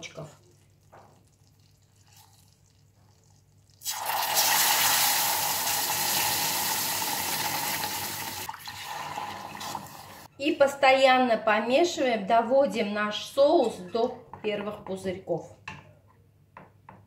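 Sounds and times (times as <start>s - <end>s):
milk pouring into saucepan: 0.4s - 10.2s
roux hissing and bubbling: 0.4s - 10.3s.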